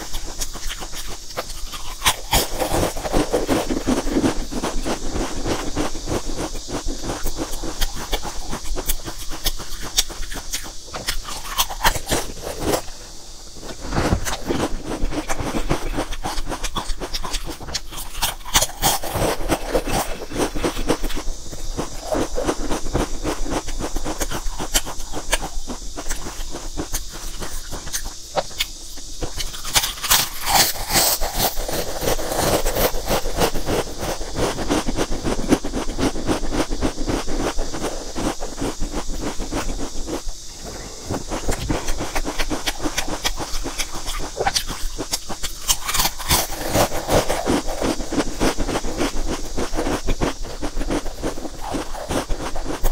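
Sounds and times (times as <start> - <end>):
potato chips crunching: 0.0 - 35.0, 37.4 - 49.1.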